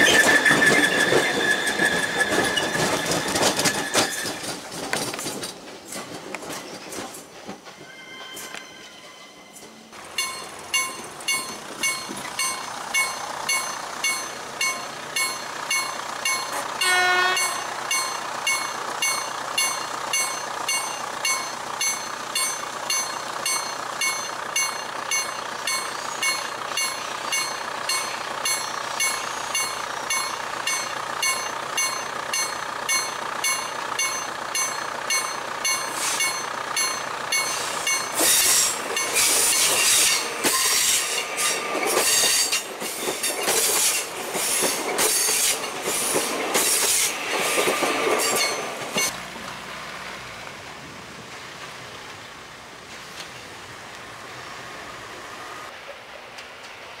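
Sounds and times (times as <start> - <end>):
train running noise: 0.0 - 57.0
level-crossing warning bell ringing: 7.6 - 43.5, 48.2 - 49.2
train horn toot: 7.8 - 9.9, 16.8 - 17.7.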